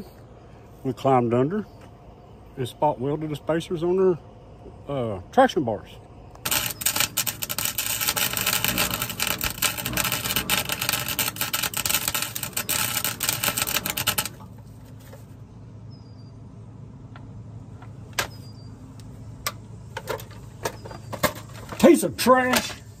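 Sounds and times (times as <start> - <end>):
welding arc crackling: 6.4 - 14.6.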